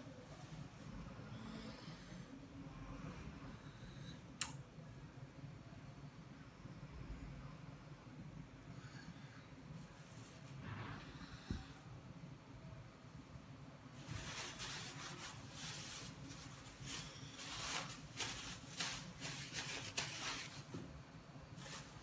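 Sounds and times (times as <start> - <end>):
plastic bag crinkling: 14.2 - 20.7.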